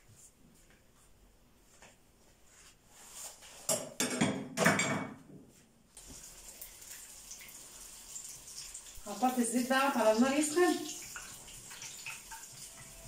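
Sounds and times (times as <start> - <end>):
dishes and utensils clattering: 3.6 - 5.2
batter sizzling in hot oil: 6.0 - 13.0.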